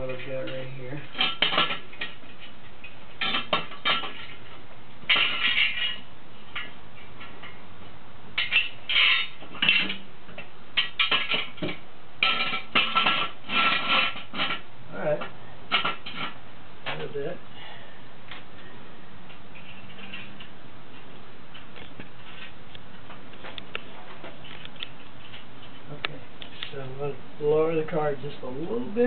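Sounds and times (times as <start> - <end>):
metallic clanks and rattles: 0.0 - 7.6, 8.4 - 17.1.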